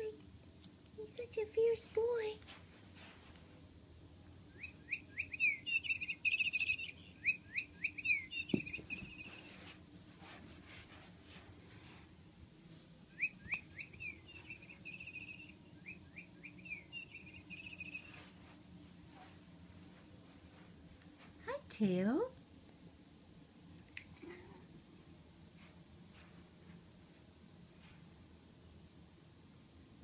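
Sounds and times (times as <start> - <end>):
toy bird chirping: 4.6 - 9.4, 13.2 - 18.2
small knock: 8.5 - 9.1.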